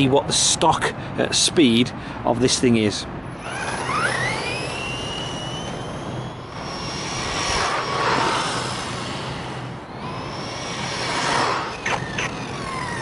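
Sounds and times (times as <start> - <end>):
rush of noise: 3.2 - 13.0
electric motor whining: 3.3 - 13.0.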